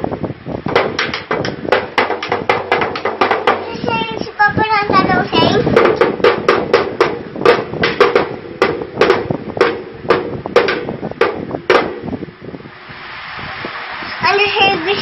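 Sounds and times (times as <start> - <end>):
toy drum being beaten: 0.7 - 4.0, 5.0 - 12.1.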